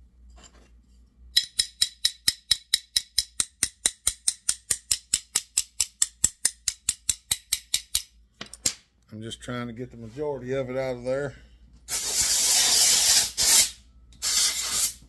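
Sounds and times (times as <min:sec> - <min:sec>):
hammer tapping on metal: 0:01.4 - 0:08.6.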